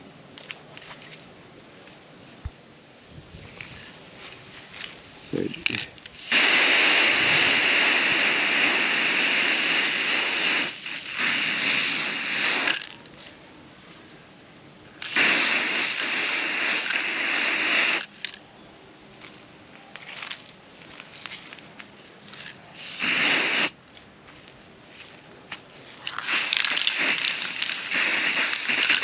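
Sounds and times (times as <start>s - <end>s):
spray paint can hissing: 6.2s - 12.9s, 15.0s - 18.1s, 22.8s - 23.8s, 26.1s - 29.0s.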